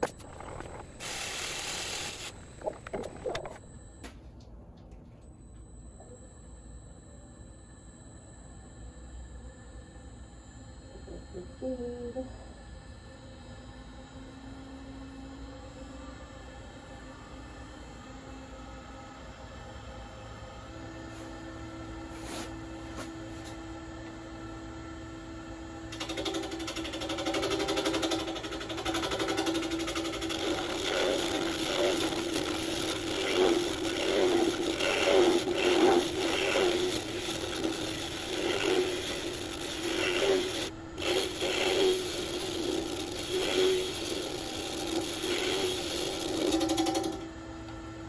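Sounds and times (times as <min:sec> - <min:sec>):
wood lathe humming: 0:25.9 - 0:48.0.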